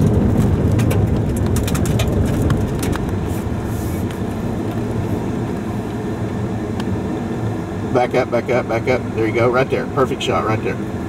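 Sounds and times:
clicks and rattles: 0:00.0 - 0:03.2
car engine and tyres rumbling: 0:00.0 - 0:11.0.

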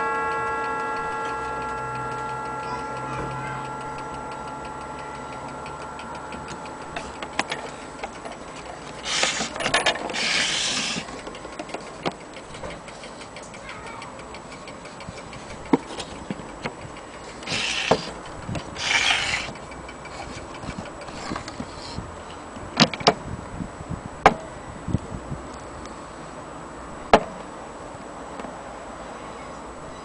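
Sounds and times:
clock ticking: 0:00.0 - 0:21.8.

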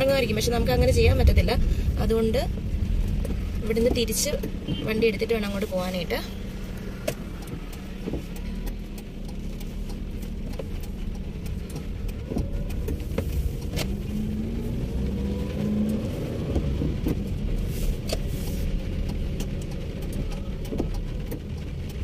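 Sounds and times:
car engine rumble: 0:00.0 - 0:22.0
light ticks: 0:00.0 - 0:22.0
tyres hissing on wet road: 0:12.9 - 0:19.0.

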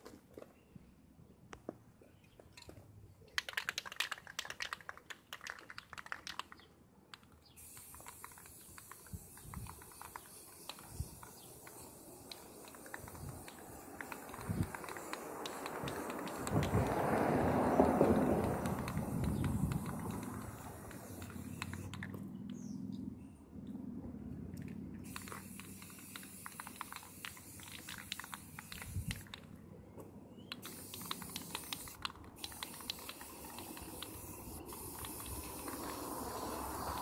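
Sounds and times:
spray can rattling: 0:03.3 - 0:22.7, 0:25.0 - 0:29.6, 0:30.5 - 0:37.0
spray can hissing: 0:07.5 - 0:22.1, 0:25.0 - 0:29.5, 0:30.5 - 0:37.0.

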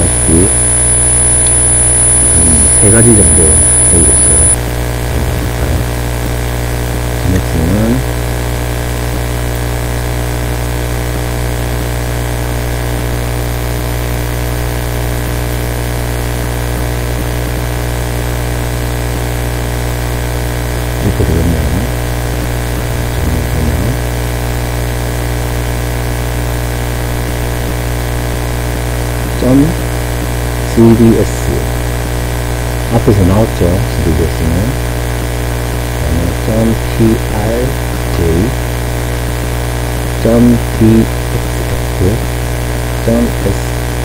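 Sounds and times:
short vocal sounds: 0:00.0 - 0:06.0, 0:21.0 - 0:22.0, 0:22.8 - 0:24.0, 0:36.0 - 0:38.6
electrical mains hum: 0:00.0 - 0:08.2, 0:20.8 - 0:24.3, 0:35.6 - 0:44.0.

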